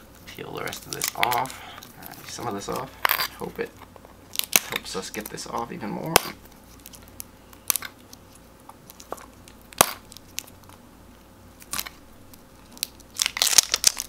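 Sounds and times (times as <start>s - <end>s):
tape seal crinkling: 0.0s - 3.7s, 11.6s - 14.0s.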